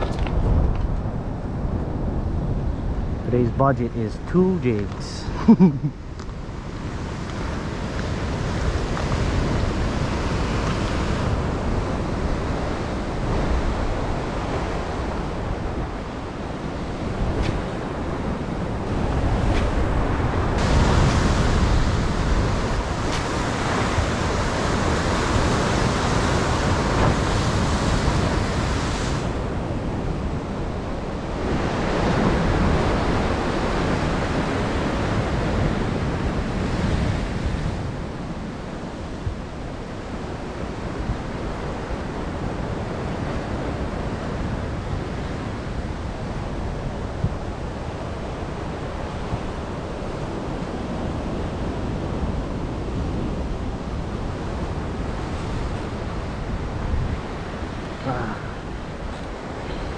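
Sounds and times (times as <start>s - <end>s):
ocean surf washing in: 0.0s - 59.9s
wind buffeting microphone: 0.0s - 59.9s.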